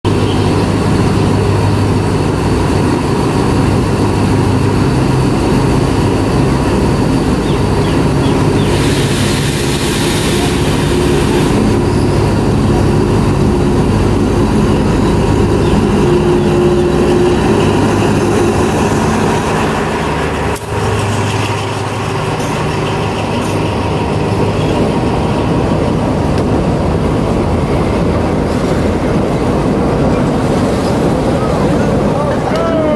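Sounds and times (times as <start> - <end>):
diesel locomotive running: 0.0 - 32.9
train carriages rolling past: 0.1 - 32.9.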